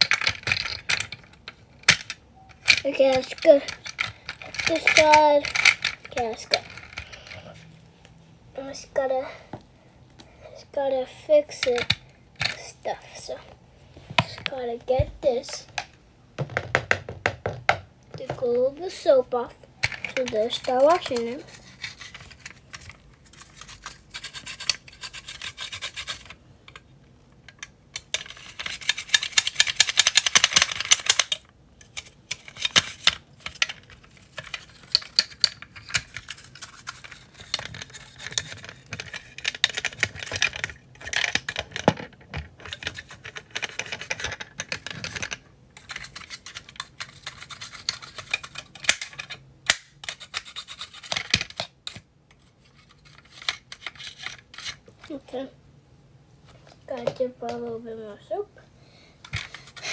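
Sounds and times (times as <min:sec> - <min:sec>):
brush scrubbing toy car: 0:20.2 - 0:22.6, 0:23.3 - 0:26.3, 0:45.9 - 0:48.6, 0:50.0 - 0:51.1.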